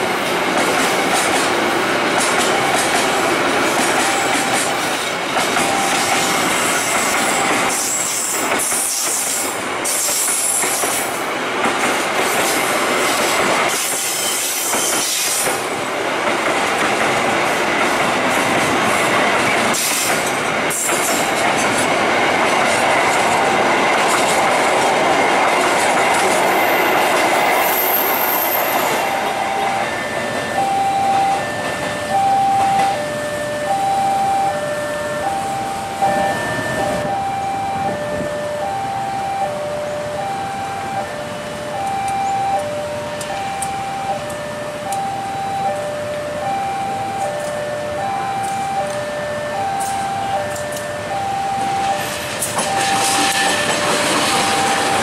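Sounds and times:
train wheels rumbling on rails: 0.0 - 55.0
metallic wheel squeal: 14.0 - 15.4.

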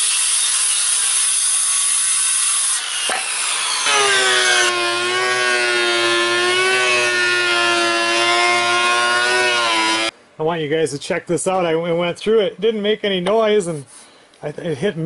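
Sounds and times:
circular saw cutting wood: 0.0 - 10.1
thickness planer whining: 0.0 - 10.1.

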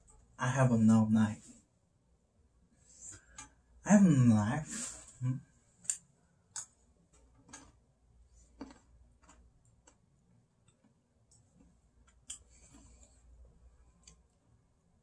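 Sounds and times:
small objects clicking and tapping: 5.8 - 7.8.

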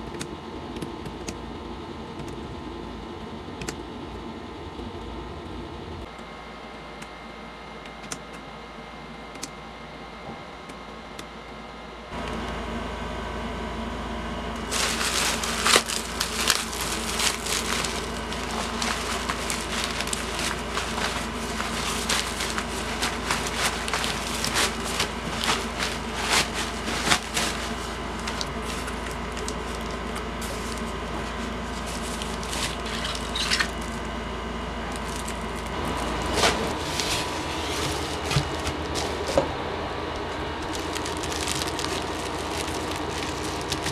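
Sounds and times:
low hum: 12.2 - 43.9
bubble wrap crinkling: 14.6 - 34.1, 34.8 - 39.5, 40.2 - 43.9.

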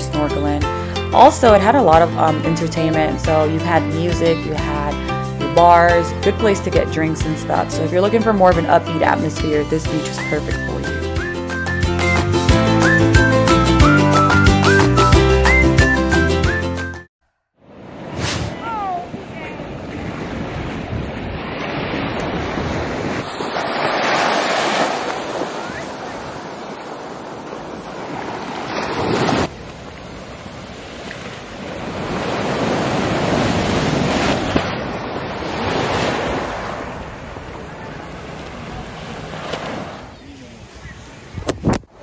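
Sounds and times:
wind buffeting microphone: 18.5 - 23.8, 25.0 - 42.0
small waves washing on sand: 18.5 - 41.4.

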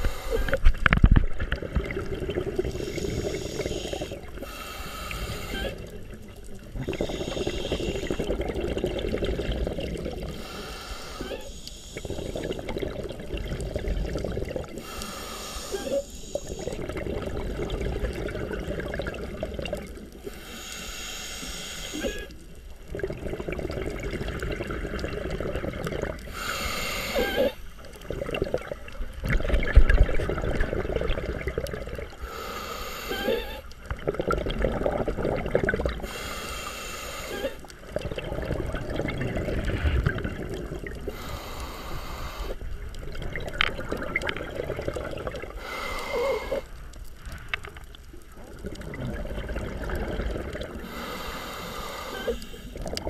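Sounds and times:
regulator hissing inhale: 0.0 - 0.6, 2.6 - 6.0, 6.8 - 8.4, 10.3 - 12.9, 14.8 - 16.8, 20.2 - 22.4, 26.2 - 28.0, 32.1 - 33.7, 36.0 - 37.7, 41.1 - 42.7, 45.5 - 46.9, 50.7 - 52.9
exhaled bubbles gurgling: 0.0 - 53.0.

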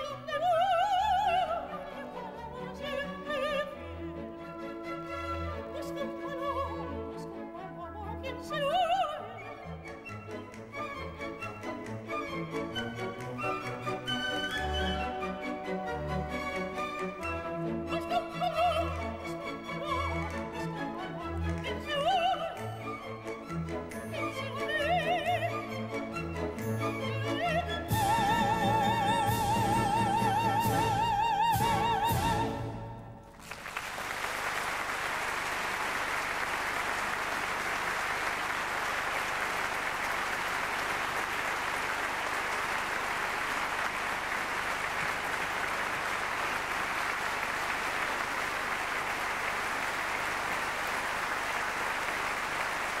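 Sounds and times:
operatic soprano singing: 0.0 - 9.8, 17.6 - 23.3, 23.9 - 33.1
audience applauding: 33.2 - 53.0.

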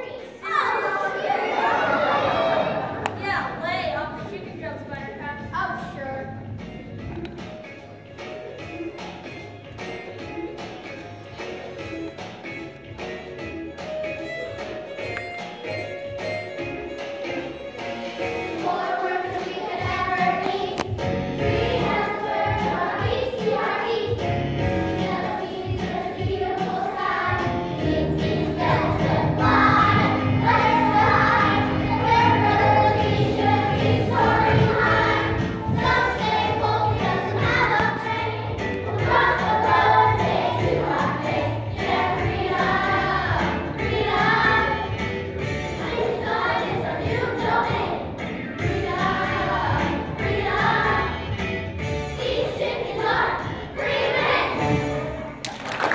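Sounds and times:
children singing together: 0.0 - 3.1, 18.2 - 51.3, 51.9 - 55.3
instrumental accompaniment: 4.0 - 55.6.

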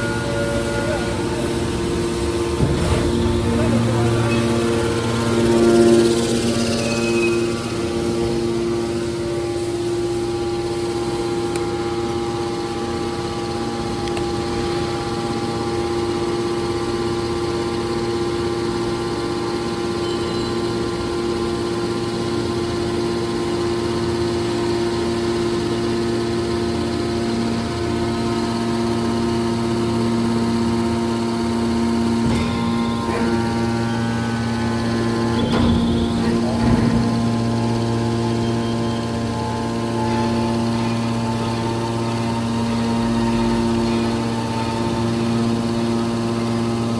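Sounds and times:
hydraulic power unit humming: 0.0 - 46.9.

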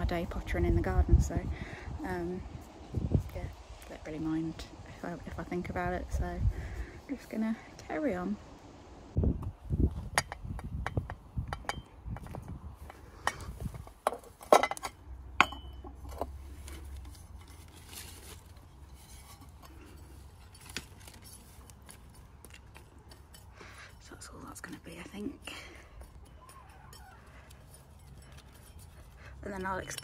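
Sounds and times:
metal trowel clinking on tub: 25.5 - 30.0.

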